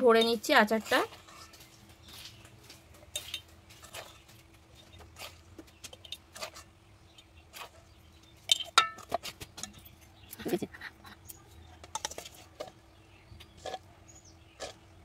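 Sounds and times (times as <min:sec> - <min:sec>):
metal spoon scraping metal bowl: 0:00.2 - 0:07.9.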